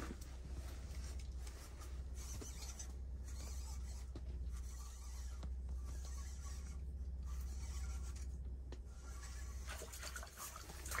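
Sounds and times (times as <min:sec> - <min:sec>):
clothing and gear rustling: 0:00.0 - 0:04.0
low hum: 0:00.0 - 0:11.0.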